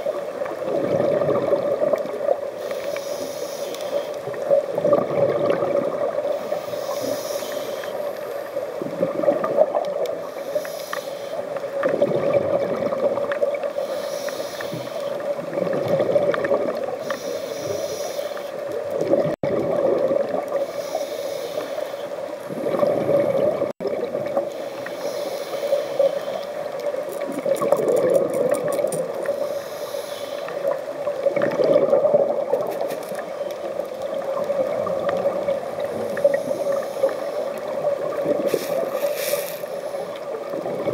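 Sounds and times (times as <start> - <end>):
regulator inhale hiss: 2.6 - 4.4, 6.2 - 8.8, 10.2 - 11.6, 13.7 - 15.3, 17.0 - 18.7, 20.6 - 22.4, 24.5 - 26.7, 29.2 - 30.8, 35.9 - 37.6, 38.4 - 40.3.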